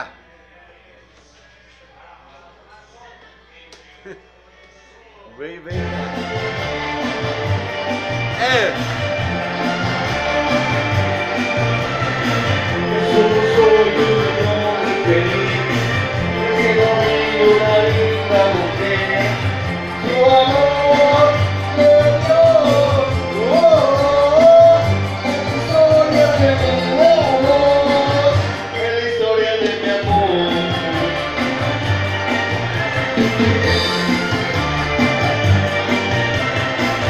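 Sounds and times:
loud amplified music with bass beat: 0:05.7 - 0:37.0
man singing into microphone: 0:12.7 - 0:31.6.

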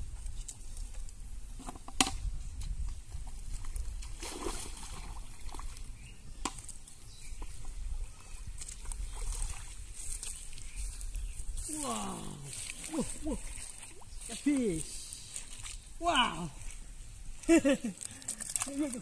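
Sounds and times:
water sloshing and splashing: 0:03.3 - 0:06.0, 0:08.6 - 0:10.8, 0:11.7 - 0:16.9, 0:18.0 - 0:19.0.

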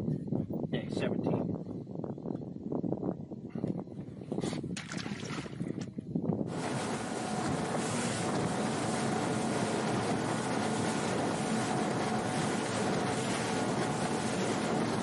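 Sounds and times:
wind on microphone: 0:00.0 - 0:15.0
outboard motor humming: 0:04.1 - 0:15.0
water spray off hull: 0:06.5 - 0:15.0.

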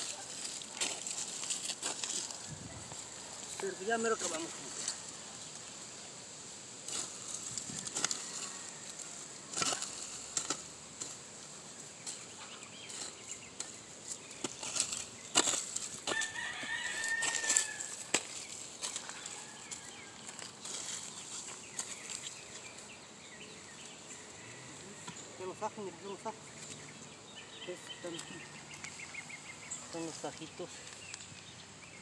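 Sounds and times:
hoe scraping and chopping soil: 0:00.0 - 0:05.1, 0:06.8 - 0:23.0.

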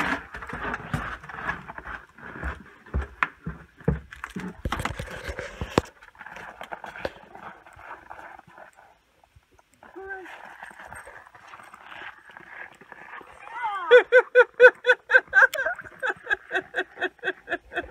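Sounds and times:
footsteps on wooden stairs: 0:02.3 - 0:04.9.

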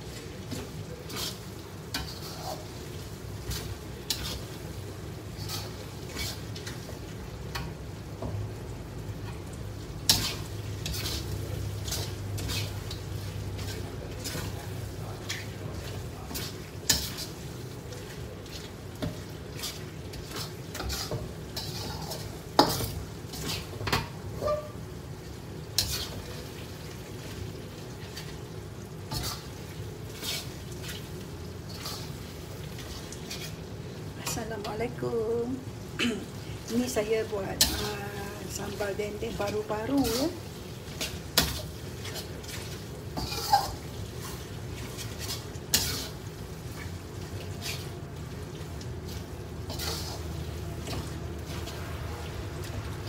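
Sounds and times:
frying sizzle: 0:00.0 - 0:53.0
spatula scraping metal wok: 0:00.5 - 0:02.8, 0:03.4 - 0:04.7, 0:05.3 - 0:06.8, 0:10.1 - 0:14.7, 0:18.5 - 0:24.8, 0:25.8 - 0:26.3, 0:29.1 - 0:31.1, 0:31.7 - 0:34.7, 0:37.4 - 0:46.9, 0:49.0 - 0:52.8.

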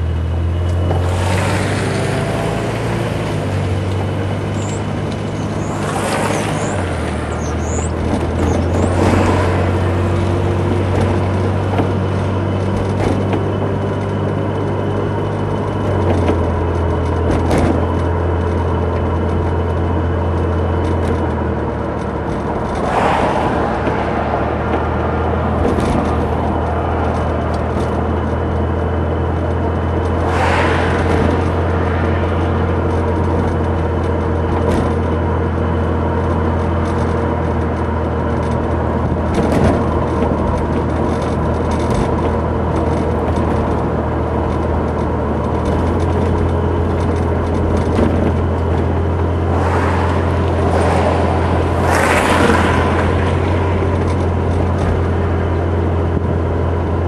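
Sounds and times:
engine and tyre drone: 0:00.0 - 0:57.0
car body knocks and rattles: 0:03.4 - 0:57.0.

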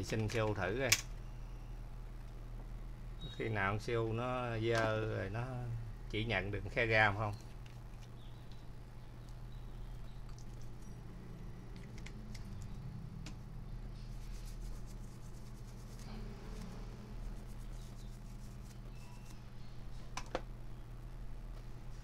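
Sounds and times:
low electrical hum: 0:00.0 - 0:22.0
rubbing and scratching by hand: 0:14.0 - 0:19.4.

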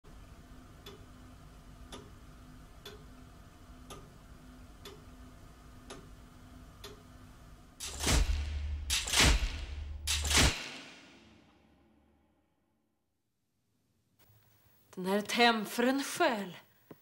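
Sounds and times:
faint steady hum: 0:00.1 - 0:08.9
clock ticking: 0:00.8 - 0:01.1, 0:01.9 - 0:02.2, 0:02.8 - 0:03.1, 0:03.8 - 0:04.1, 0:04.8 - 0:05.1, 0:05.8 - 0:06.1.

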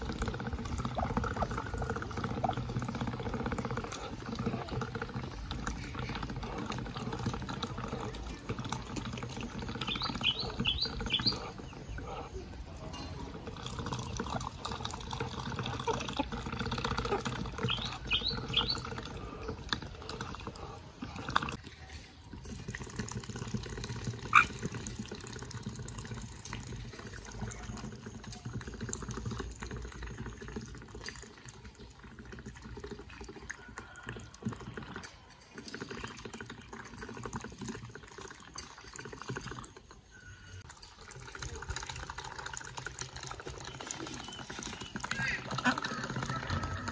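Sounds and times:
water splashing: 0:00.0 - 0:27.7
ducks slurping water: 0:00.0 - 0:46.9.

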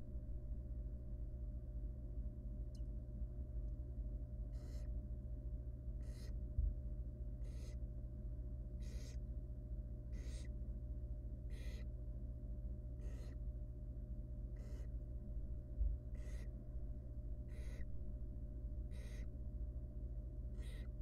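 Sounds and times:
low electrical hum: 0:00.0 - 0:21.0
owl chick raspy hissing call: 0:04.5 - 0:04.9, 0:06.0 - 0:06.4, 0:07.4 - 0:07.8, 0:08.8 - 0:09.2, 0:10.1 - 0:10.5, 0:11.5 - 0:11.9, 0:13.0 - 0:13.4, 0:14.6 - 0:14.9, 0:16.2 - 0:16.5, 0:17.5 - 0:17.8, 0:18.9 - 0:19.3, 0:20.6 - 0:20.9.

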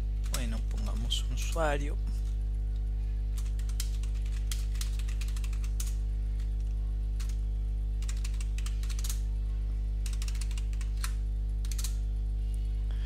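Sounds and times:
low electrical hum: 0:00.0 - 0:13.0
keyboard typing: 0:00.2 - 0:01.1, 0:03.4 - 0:07.4, 0:08.0 - 0:09.2, 0:10.0 - 0:12.0.

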